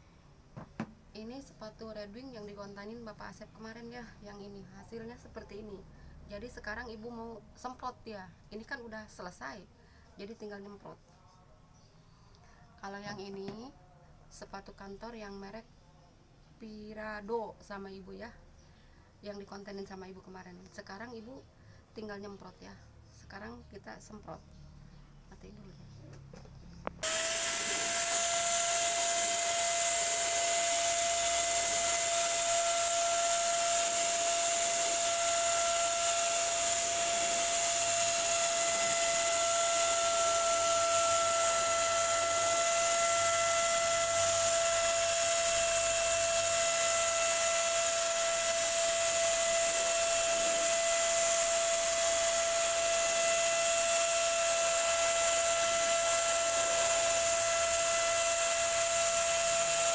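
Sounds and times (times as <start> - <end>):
electric paint spray gun: 27.0 - 59.9.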